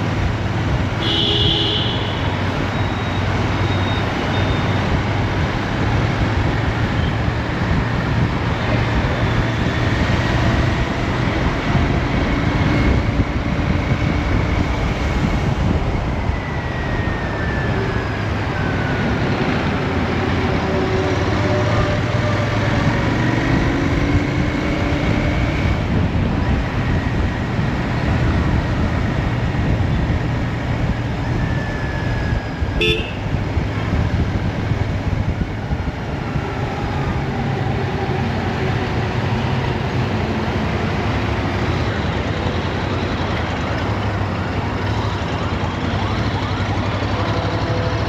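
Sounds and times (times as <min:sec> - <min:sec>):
traffic horns tooting: 0:01.0 - 0:04.9, 0:32.7 - 0:33.4.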